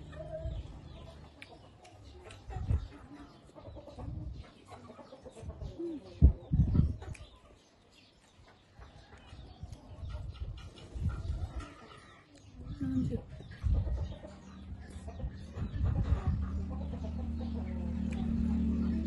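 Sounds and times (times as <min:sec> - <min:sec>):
chewing eggplant: 0:01.0 - 0:03.6, 0:16.4 - 0:19.0.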